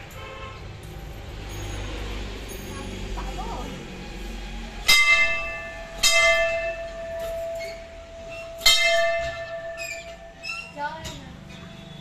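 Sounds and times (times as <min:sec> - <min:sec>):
temple bell clanging: 0:04.7 - 0:12.0.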